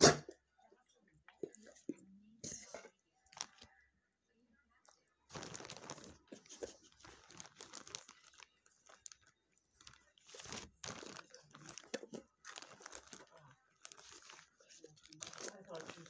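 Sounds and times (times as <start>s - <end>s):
snack bag crinkling: 3.3s - 3.8s, 4.9s - 16.0s
dog chewing treats: 5.3s - 16.0s.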